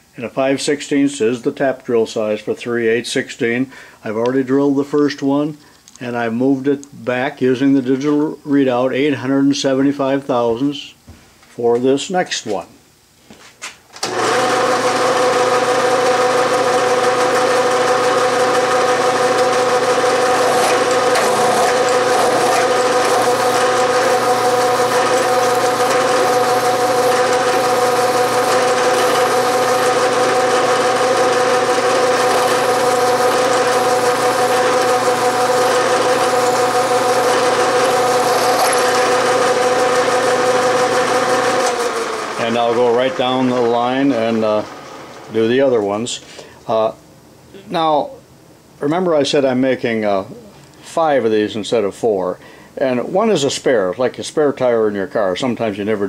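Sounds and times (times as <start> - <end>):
milling machine humming: 14.0 - 45.4.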